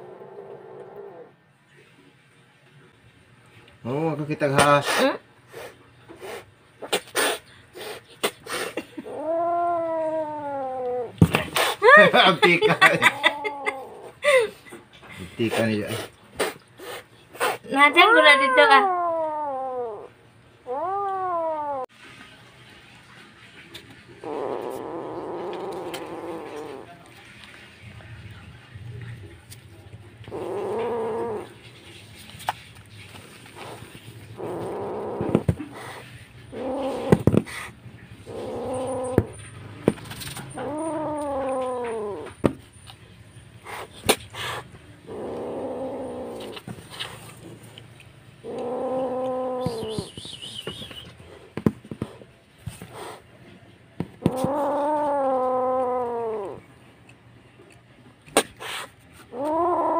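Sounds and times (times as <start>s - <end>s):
kitten meowing: 17.8s - 20.1s, 20.7s - 21.9s, 38.3s - 39.4s, 40.6s - 42.3s, 48.5s - 50.8s, 59.3s - 59.9s.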